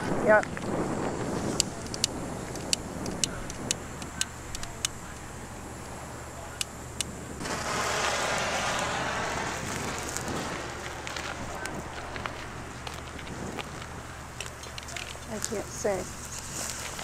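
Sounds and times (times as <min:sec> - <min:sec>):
burning powder hissing: 0:00.7 - 0:17.0
sharp ticks: 0:01.6 - 0:05.3.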